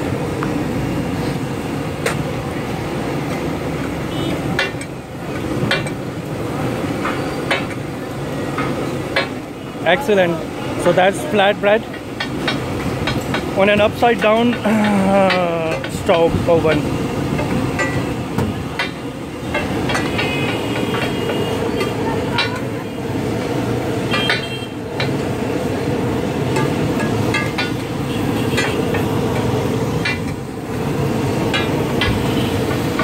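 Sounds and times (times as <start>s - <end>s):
gas burner roar: 0.0s - 33.0s
knocks and clatters: 4.5s - 6.0s, 15.3s - 22.6s, 26.5s - 30.4s.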